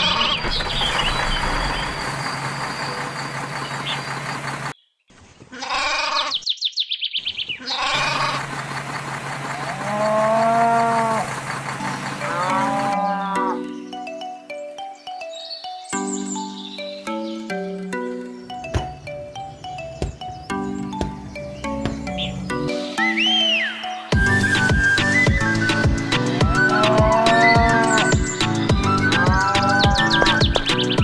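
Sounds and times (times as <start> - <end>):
farmyard background noise: 0.0 - 1.8, 2.9 - 15.7, 17.5 - 22.9, 26.5 - 31.0
sheep bleating: 5.5 - 6.3, 7.6 - 8.4, 26.5 - 28.1, 29.2 - 30.3
cow mooing: 7.7 - 8.4, 9.6 - 11.3, 12.1 - 13.7, 26.5 - 28.1, 29.2 - 30.4
music with stepped notes: 12.2 - 23.2, 24.0 - 31.0.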